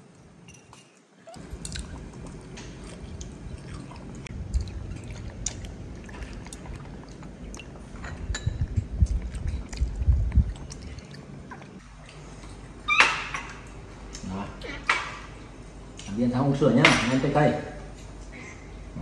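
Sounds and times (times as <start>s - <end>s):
metal utensils clinking on bowls: 0.4s - 1.9s, 7.6s - 9.9s
monkey chewing: 1.3s - 13.0s.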